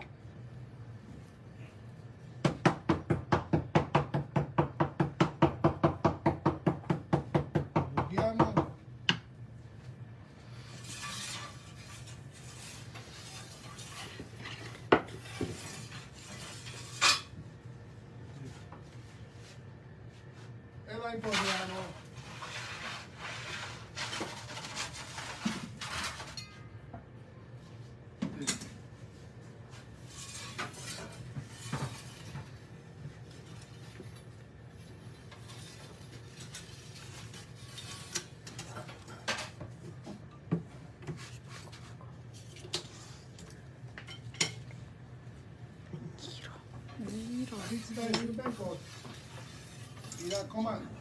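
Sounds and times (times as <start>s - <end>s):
metal peel clinking and scraping: 10.6s - 17.4s, 23.9s - 26.7s, 35.1s - 39.6s, 47.0s - 50.8s.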